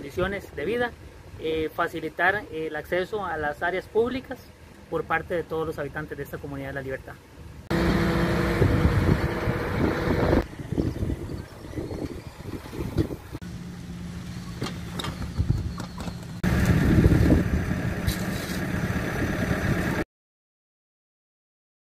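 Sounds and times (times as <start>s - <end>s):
machinery engine running: 7.7s - 20.0s.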